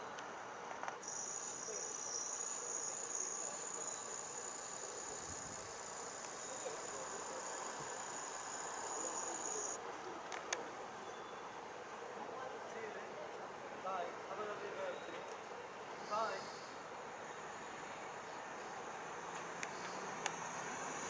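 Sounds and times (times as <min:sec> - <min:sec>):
outdoor background hiss: 0:00.0 - 0:21.0
high-pitched zoom motor whine: 0:01.0 - 0:09.8.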